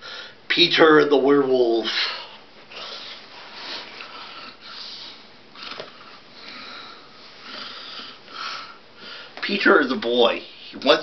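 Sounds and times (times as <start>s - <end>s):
person breathing hard: 0.0s - 0.4s, 1.9s - 9.4s.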